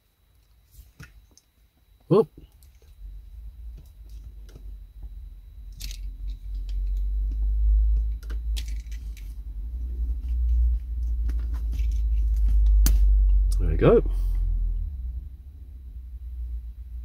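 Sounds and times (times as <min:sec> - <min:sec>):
steady low rumble: 0:02.3 - 0:17.0
small metallic clicks and rattles: 0:05.7 - 0:09.4.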